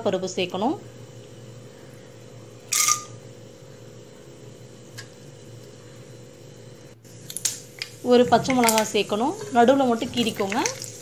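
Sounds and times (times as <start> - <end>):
faint steady hum: 0.0 - 11.0
lentils sizzling in hot oil: 8.8 - 11.0.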